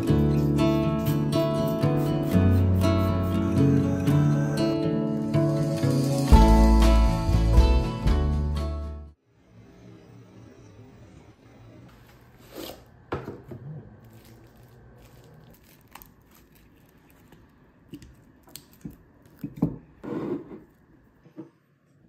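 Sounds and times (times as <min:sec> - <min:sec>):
plastic wrap crinkling and tearing: 0:14.0 - 0:19.5.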